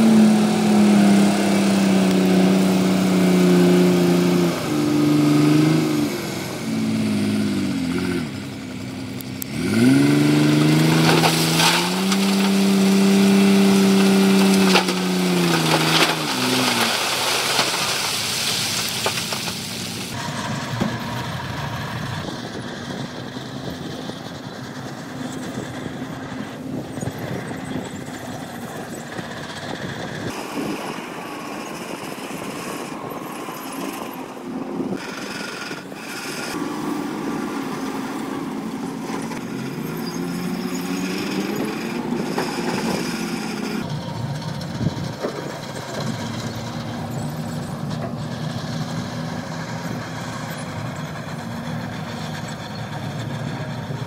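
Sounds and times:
diesel truck engine revving: 0:00.0 - 0:54.0
rock crunching and clattering: 0:10.6 - 0:20.2.

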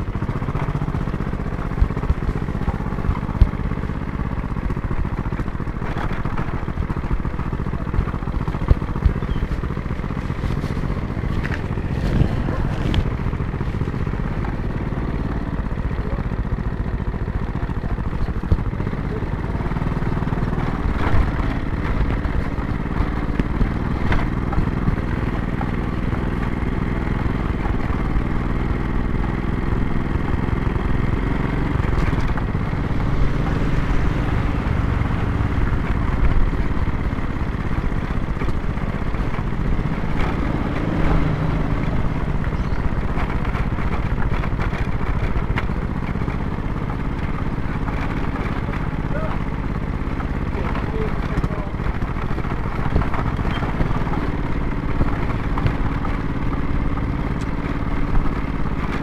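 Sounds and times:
motor scooter engine running: 0:00.0 - 0:59.0.

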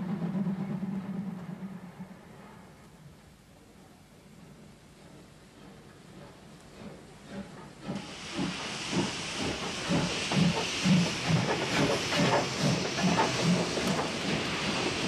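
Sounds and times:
locomotive exhaust chuffs: 0:04.4 - 0:15.0
steam hissing from drain cocks: 0:07.3 - 0:15.0.

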